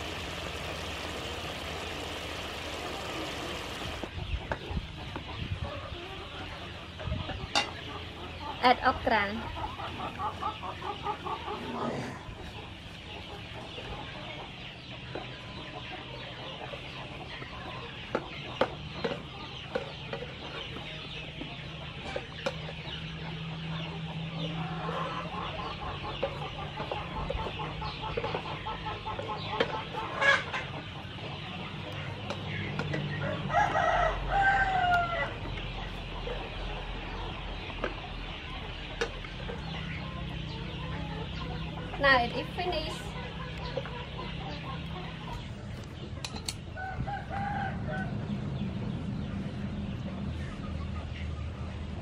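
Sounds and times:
chickens clucking: 0.0s - 52.0s
rooster crowing: 33.2s - 35.4s, 46.8s - 48.2s.

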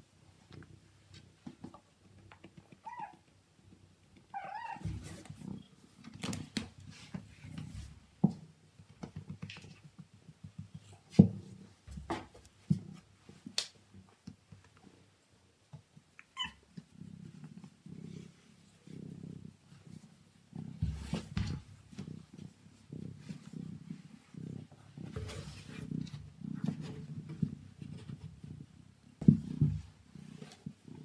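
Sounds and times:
knocks and rubbing on floor: 4.8s - 13.4s, 20.0s - 31.0s
cat purring: 16.6s - 31.0s.

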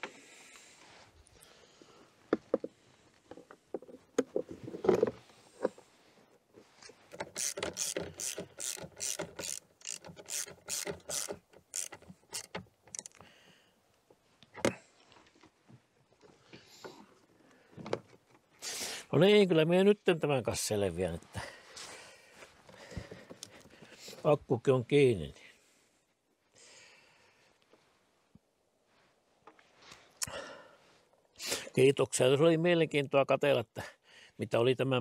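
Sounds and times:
ratchet wrench clicking: 7.2s - 13.2s.

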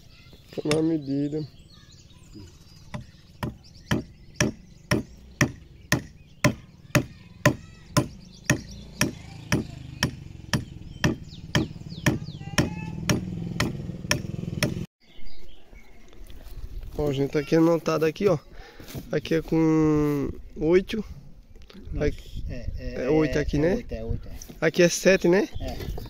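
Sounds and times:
adze chopping wood: 2.9s - 14.9s.

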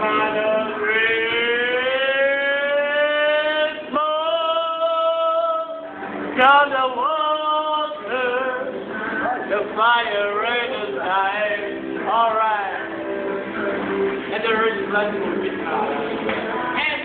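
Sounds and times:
person singing long notes: 0.0s - 13.0s.

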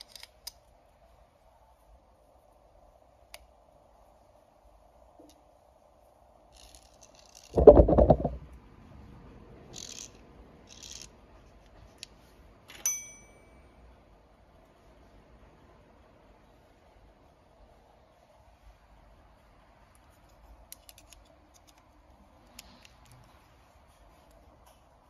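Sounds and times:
metallic clink: 12.7s - 13.7s.

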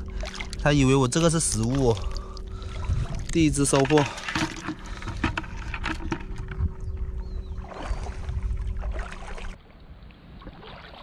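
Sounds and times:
low rumble: 0.0s - 9.6s
seawater sloshing and splashing: 0.0s - 11.0s
clicks and knocks: 3.7s - 6.6s.

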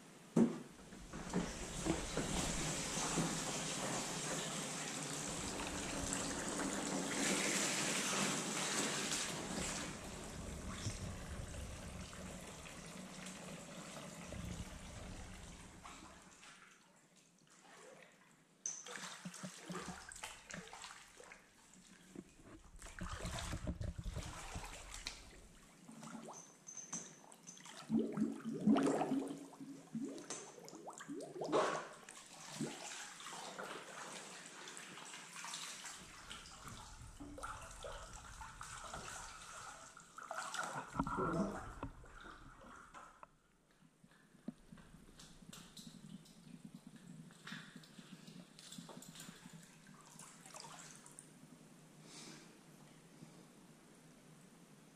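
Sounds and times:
bathwater sloshing and splashing: 0.8s - 26.4s, 27.2s - 43.8s, 44.5s - 51.3s
water trickling and dripping: 1.0s - 43.2s, 44.4s - 51.3s
rush of running water: 1.1s - 16.0s.

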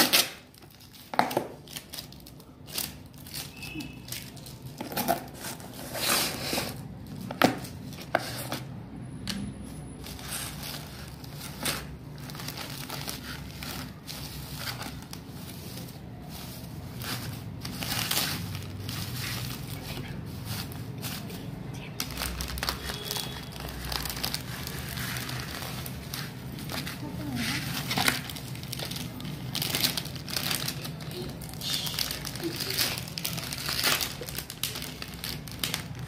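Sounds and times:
bubble wrap crinkling: 0.0s - 8.9s, 9.6s - 36.0s.

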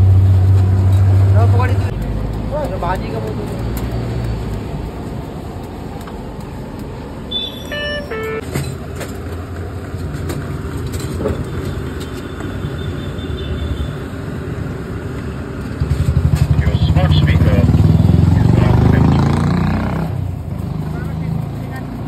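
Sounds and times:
traffic engines rumbling: 0.0s - 22.0s
brief high pitched tone: 7.3s - 8.4s.

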